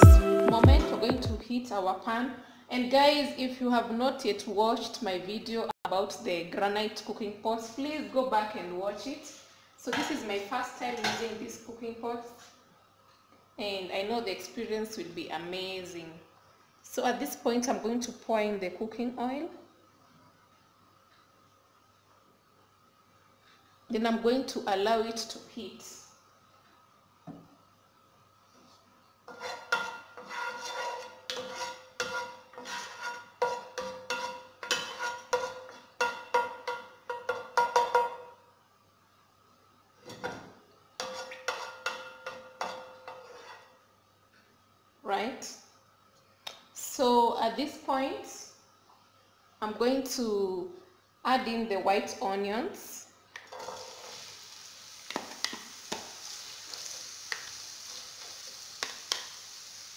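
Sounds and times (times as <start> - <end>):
wooden spoon scraping a pot: 28.6 - 36.0, 42.6 - 43.8, 53.5 - 54.3
onions sizzling in hot oil: 53.4 - 59.9.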